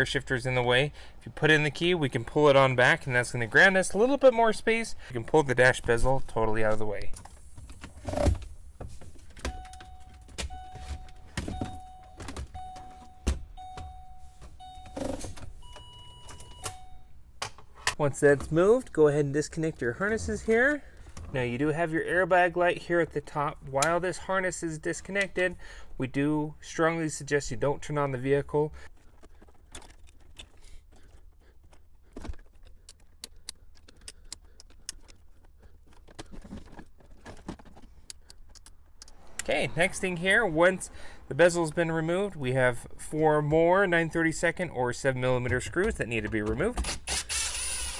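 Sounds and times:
dashboard warning chime beeping: 9.4 - 17.2
plastic clicks and rattles: 29.0 - 39.1.

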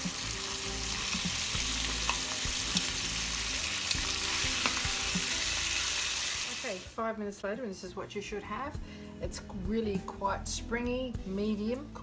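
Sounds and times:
steaks sizzling in a pan: 0.0 - 6.8.

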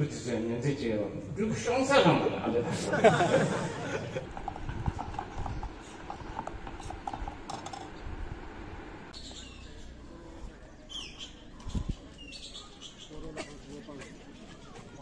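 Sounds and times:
bird chirps: 9.1 - 10.0, 10.6 - 13.3
faint murmur: 9.2 - 15.0.

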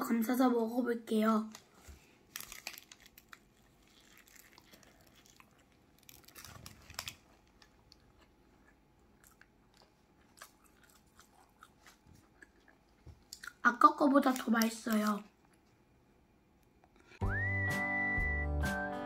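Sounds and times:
soft crunches: 1.6 - 13.5
chewing a burger: 2.4 - 13.6.

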